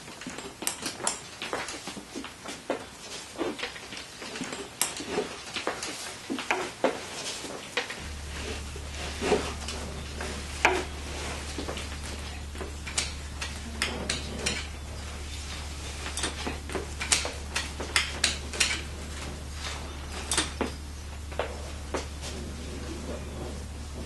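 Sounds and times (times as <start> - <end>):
clicks and knocks of handling: 0.1 - 8.0, 11.5 - 24.0
steady low hum: 7.5 - 24.0.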